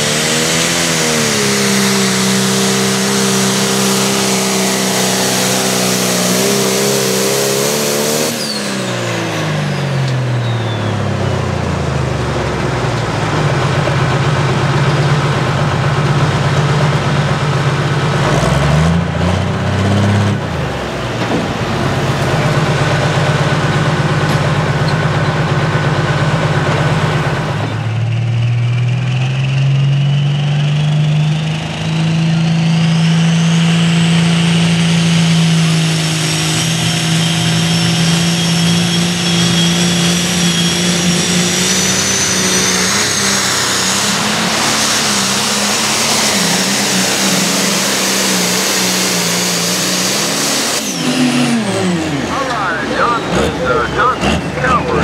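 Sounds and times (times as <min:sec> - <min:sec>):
diesel tractor engine under load: 0:00.0 - 0:55.0
turbo whine whistle: 0:37.2 - 0:43.2.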